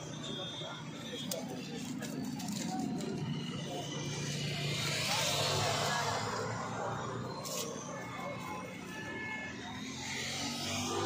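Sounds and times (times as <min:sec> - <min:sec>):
street stall background noise: 0:00.0 - 0:11.0.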